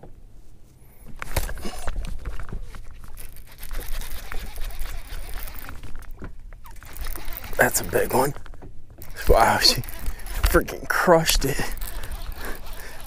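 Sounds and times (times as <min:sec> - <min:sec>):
rod handling clatter: 0:01.2 - 0:13.0
fishing reel cranking: 0:03.2 - 0:08.4, 0:09.0 - 0:13.0.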